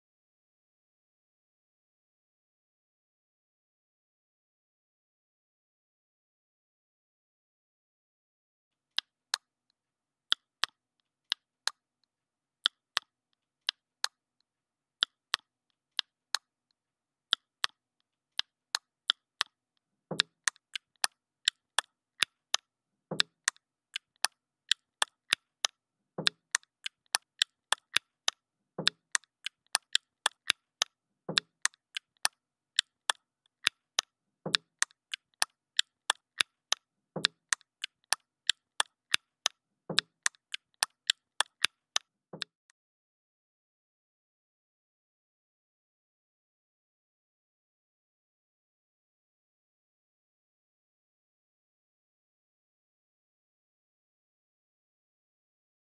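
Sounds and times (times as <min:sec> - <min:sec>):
sharp clicks: 0:20.1 - 0:42.5.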